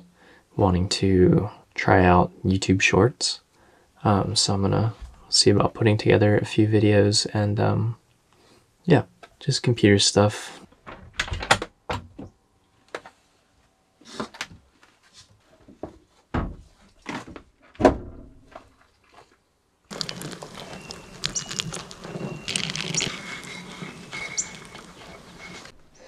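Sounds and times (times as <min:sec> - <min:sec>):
water pouring onto plant: 0:19.9 - 0:25.6.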